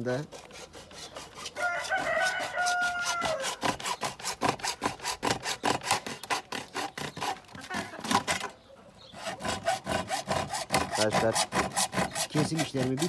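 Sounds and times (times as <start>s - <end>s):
hacksaw cutting plastic: 0.0s - 8.6s, 9.2s - 13.0s
rooster crowing: 1.5s - 3.6s.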